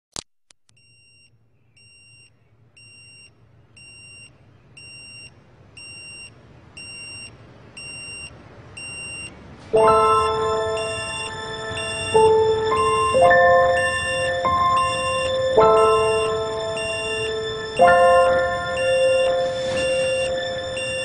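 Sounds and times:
alarm clock beeping: 1.8s - 21.0s
music with mallet tones: 9.8s - 21.0s.

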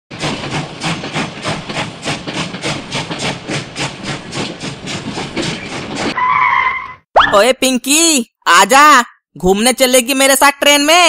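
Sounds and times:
steam locomotive chuffing: 0.1s - 6.3s.

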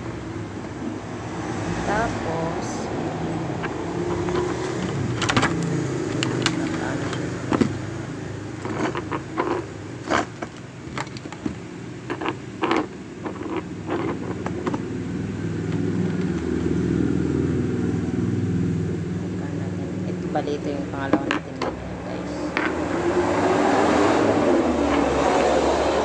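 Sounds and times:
low engine-like hum: 0.0s - 10.1s, 13.0s - 26.0s
plastic parts clicking: 3.6s - 7.9s, 8.6s - 14.9s.

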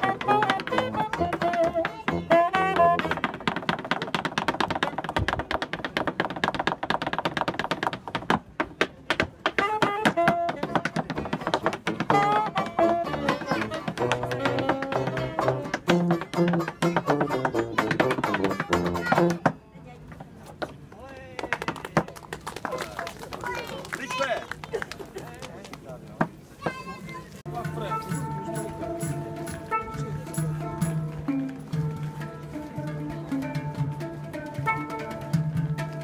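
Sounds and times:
saxophone playing tune: 0.0s - 3.4s, 9.6s - 11.0s, 11.8s - 19.4s, 27.7s - 32.4s
tap dancing on wooden board: 0.0s - 22.8s
tuba bass notes: 11.8s - 19.4s.

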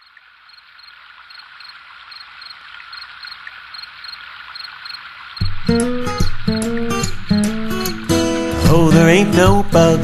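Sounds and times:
high insect drone: 0.0s - 7.1s
crickets chirping: 0.0s - 7.2s.

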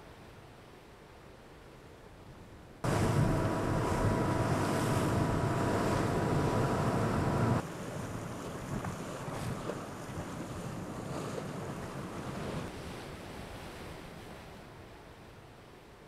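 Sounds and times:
wind buffeting microphone: 2.8s - 12.7s
water rushing along boat bow: 2.8s - 14.5s.

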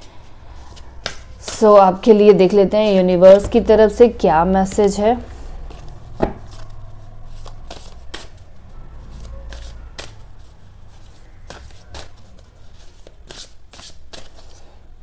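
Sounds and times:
cards shuffled by hand: 5.7s - 8.4s, 9.2s - 14.6s.

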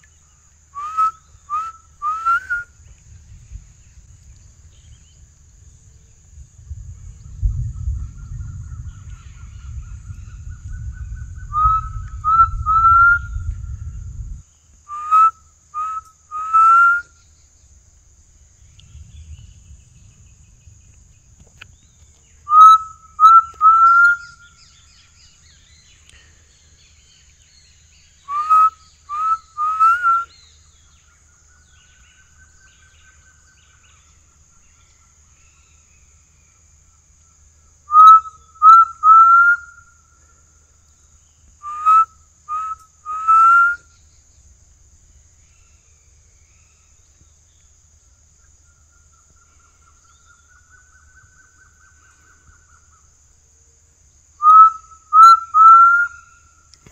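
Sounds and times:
insect drone: 0.0s - 56.9s
faint long whistle: 0.7s - 2.8s, 7.7s - 14.0s, 14.9s - 17.3s, 22.4s - 26.3s, 28.0s - 30.6s, 37.9s - 40.0s, 41.6s - 44.0s, 54.4s - 56.6s
person whistling bird call: 0.8s - 2.7s, 11.5s - 13.4s, 14.9s - 17.1s, 22.5s - 24.4s, 28.2s - 30.4s, 37.9s - 39.8s, 41.6s - 43.8s, 54.4s - 56.2s.

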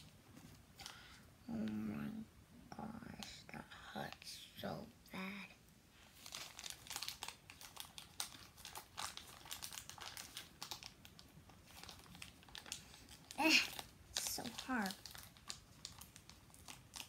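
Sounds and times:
plastic wrapper crinkling: 6.1s - 17.0s.

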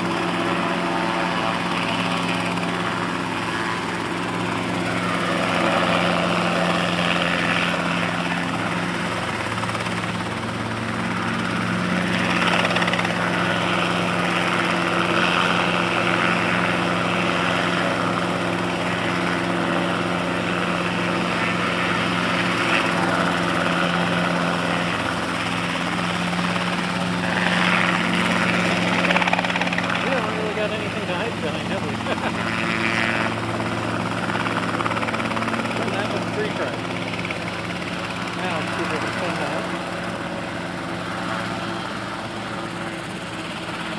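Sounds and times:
helicopter engine and rotor: 0.0s - 43.9s.

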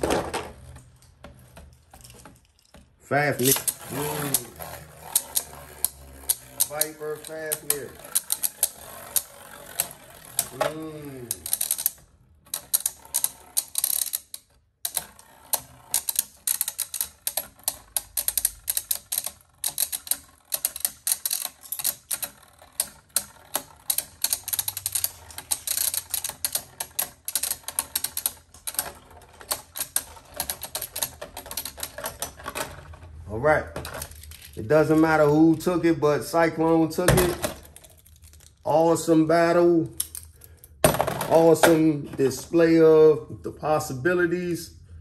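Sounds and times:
spinning tops clashing clicks: 0.0s - 35.2s.

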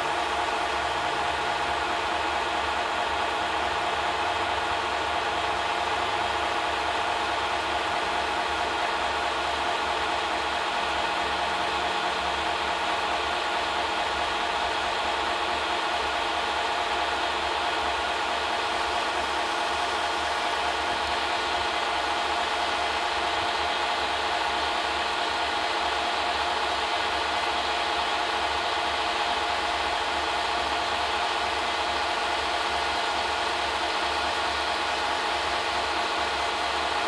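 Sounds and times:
film projector whirring: 0.0s - 37.0s.

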